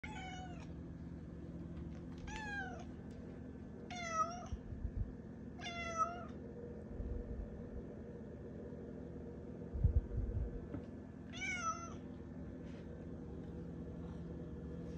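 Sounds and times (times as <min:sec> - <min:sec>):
cat meowing: 0:00.0 - 0:00.7, 0:02.3 - 0:02.9, 0:03.9 - 0:04.6, 0:05.6 - 0:06.4, 0:11.3 - 0:12.0
low steady hum: 0:00.0 - 0:14.9.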